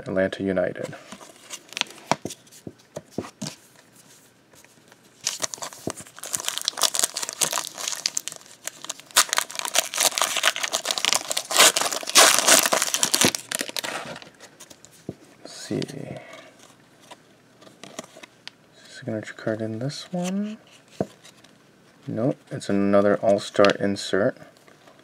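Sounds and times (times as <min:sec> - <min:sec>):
foil wrapper tearing and crinkling: 0:05.2 - 0:14.2.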